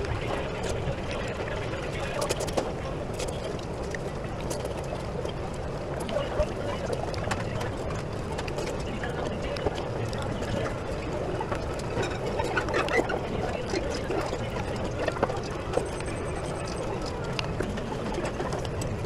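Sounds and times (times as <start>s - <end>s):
murmured voices: 6.0s - 19.0s.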